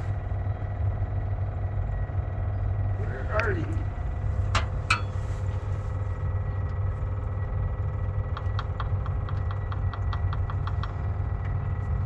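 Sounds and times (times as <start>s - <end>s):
low rumble with faint whine: 0.0s - 12.0s
fuel pump ticking: 3.3s - 5.2s, 6.6s - 12.0s.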